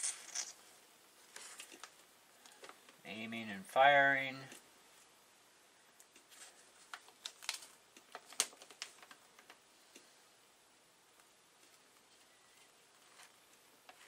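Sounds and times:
paper crinkling: 0:01.2 - 0:02.8, 0:06.0 - 0:09.6.

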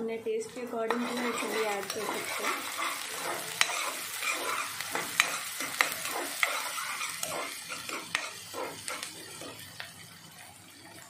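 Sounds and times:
food sizzling in oil: 0:00.4 - 0:11.0
metal ladle scraping pan: 0:00.9 - 0:09.6.

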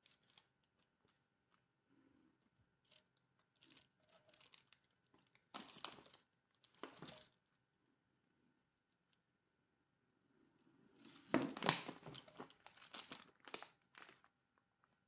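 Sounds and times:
baking paper crinkling: 0:00.0 - 0:01.6, 0:02.8 - 0:07.4, 0:11.1 - 0:14.4
paper rustling: 0:02.8 - 0:07.4.

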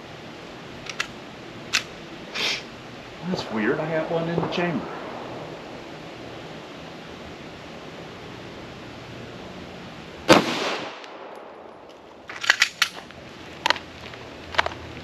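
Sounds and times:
sharp gun clicks: 0:00.8 - 0:01.9, 0:12.3 - 0:13.0
pistol shot with echo: 0:10.3 - 0:11.5.

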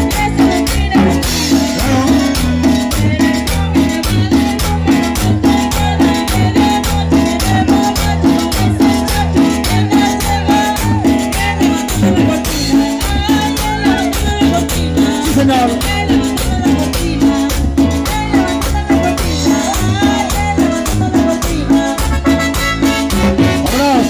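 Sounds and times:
bass-heavy beat: 0:00.0 - 0:24.0
keyboard melody: 0:00.0 - 0:24.0
shaken hand percussion: 0:00.0 - 0:24.0.

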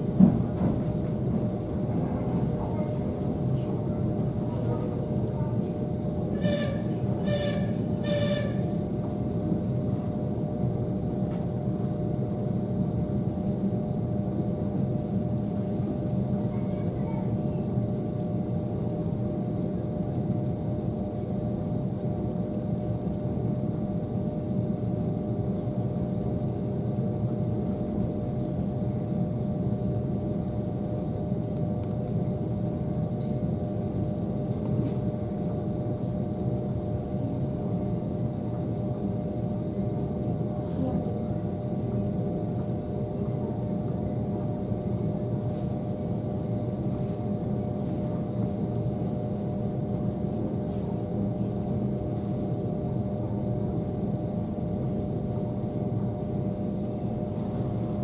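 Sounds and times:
train wheels rumbling on rails: 0:00.0 - 0:05.8
constant electrical hum: 0:00.0 - 0:58.0.

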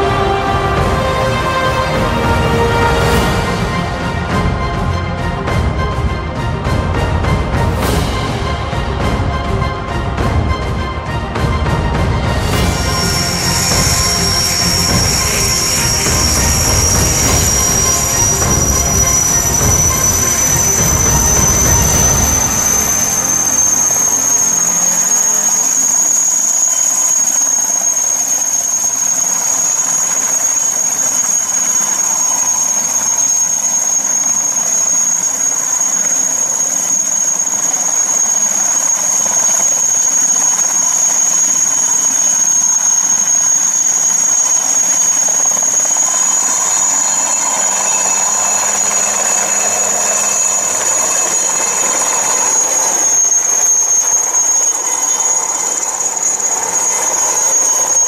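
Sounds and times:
helicopter engine whine: 0:00.0 - 0:58.0
helicopter rotor noise: 0:00.0 - 0:58.0.

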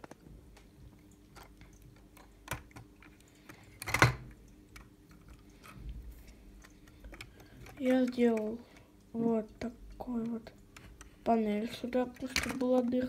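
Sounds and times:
plastic toy parts clicking: 0:06.6 - 0:08.9, 0:10.2 - 0:13.0.

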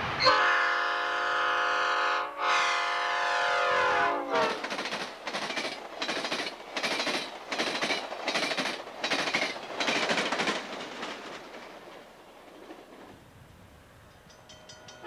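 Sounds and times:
passenger train passing: 0:00.0 - 0:15.0
wheels clattering on rails: 0:04.4 - 0:13.2, 0:14.0 - 0:15.0.

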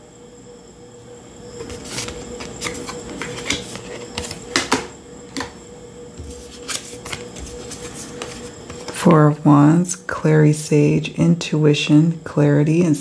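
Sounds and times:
cards clicking on table: 0:01.6 - 0:05.6.

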